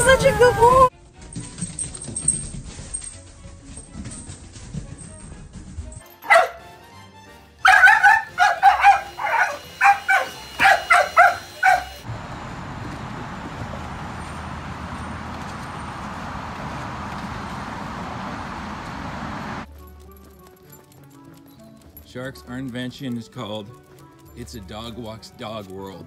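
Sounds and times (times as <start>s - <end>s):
dog barking: 6.2s - 6.7s, 7.6s - 12.0s
traffic noise: 7.7s - 19.7s.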